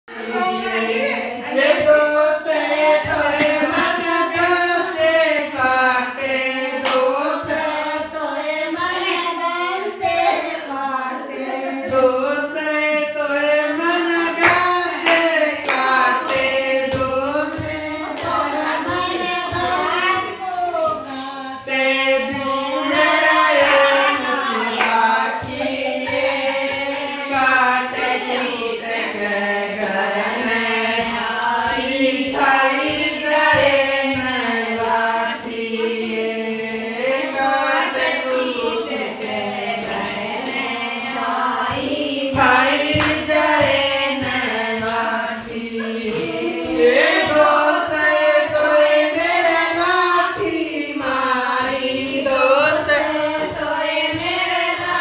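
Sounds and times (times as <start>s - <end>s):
person singing folk song: 0.0s - 55.0s
steady percussion beat: 0.2s - 12.8s, 13.7s - 55.0s.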